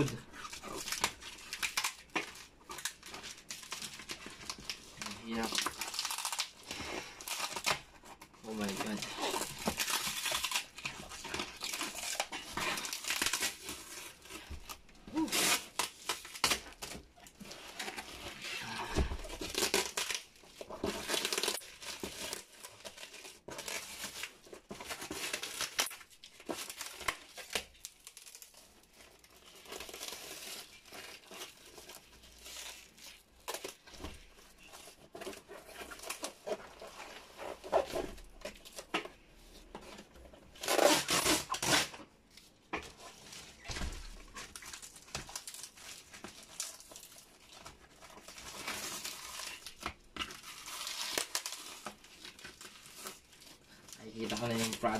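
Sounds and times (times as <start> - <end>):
plastic crinkling: 0.0 - 54.9
cardboard rustling: 0.1 - 27.8, 33.5 - 54.9
tape tearing off a box: 19.3 - 20.2, 40.6 - 42.1.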